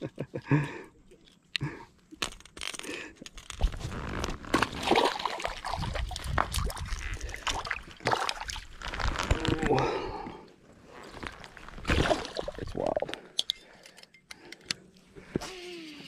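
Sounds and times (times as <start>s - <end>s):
water splashing at bank: 4.6s - 8.9s, 11.8s - 12.9s.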